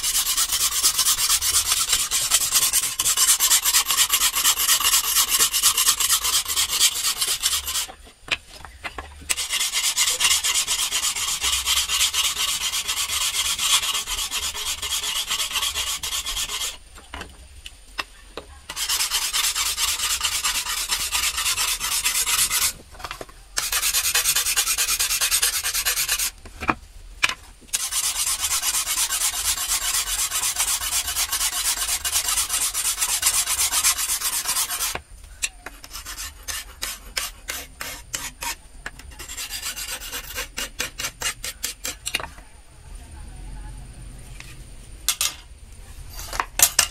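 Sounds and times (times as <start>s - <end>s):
file rasping on steel blade: 0.0s - 8.0s, 9.3s - 16.8s, 18.7s - 22.8s, 23.6s - 26.3s, 27.7s - 35.0s, 35.6s - 42.1s.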